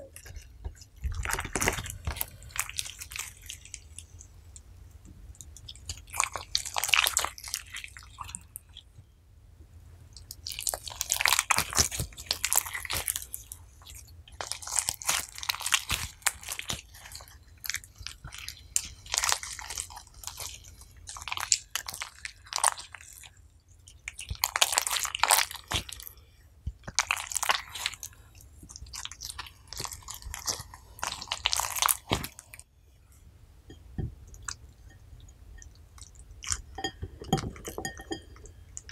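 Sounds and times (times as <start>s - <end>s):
slime squished by hand: 14.4s - 23.1s, 28.7s - 32.6s.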